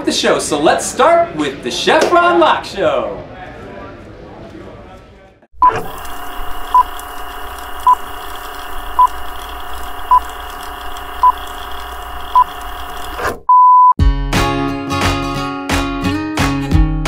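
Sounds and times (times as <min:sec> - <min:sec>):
faint crackle: 0:05.9 - 0:13.2
short high beeps: 0:13.5 - 0:13.9.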